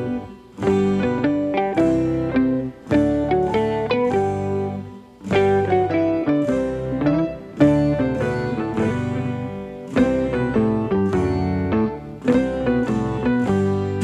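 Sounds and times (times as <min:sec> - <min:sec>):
plucked guitar tune: 0:00.0 - 0:14.0.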